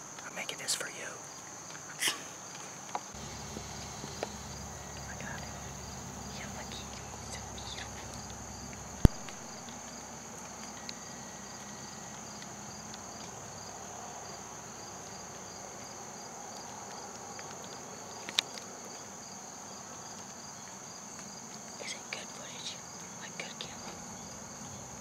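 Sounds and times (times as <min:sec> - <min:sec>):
insect pulsing chirp: 0:00.0 - 0:25.0
insect high trill: 0:01.9 - 0:15.6.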